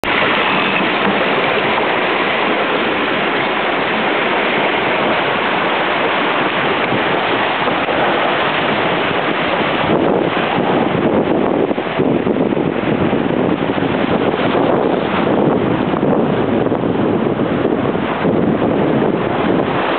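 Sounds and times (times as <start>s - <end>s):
water splashing along hull: 0.0s - 19.9s
wind buffeting microphone: 0.0s - 19.9s.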